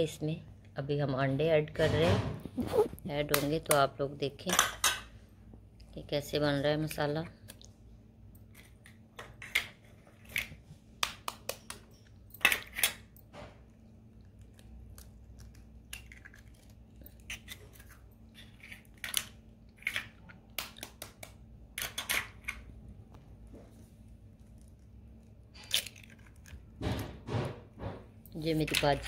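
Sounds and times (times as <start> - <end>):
eggshells cracking: 14.2 - 22.2, 24.5 - 26.7.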